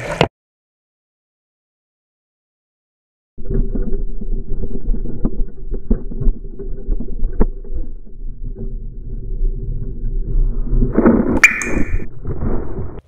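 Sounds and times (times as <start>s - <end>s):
low rumble with rattling clicks: 3.4s - 11.2s.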